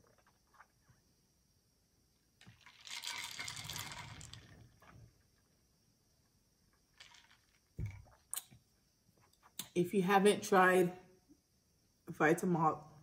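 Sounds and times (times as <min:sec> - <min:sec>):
slurping through a straw: 0:02.4 - 0:05.0.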